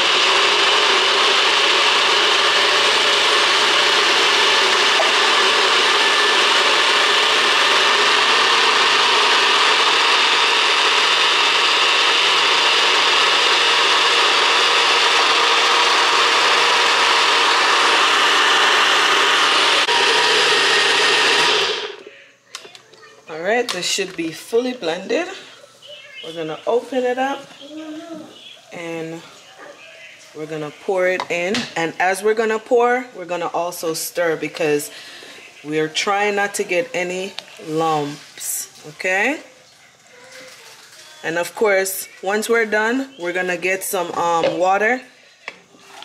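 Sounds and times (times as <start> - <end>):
blender motor running: 0.0 - 22.1.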